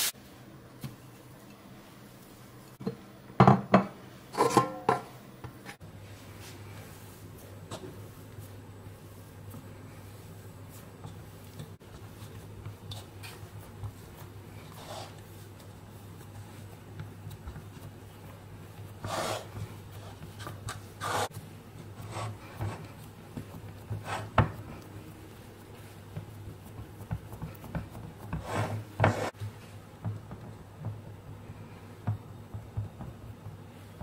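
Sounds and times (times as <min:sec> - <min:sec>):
dough scraping against metal pan: 0:26.5 - 0:29.4.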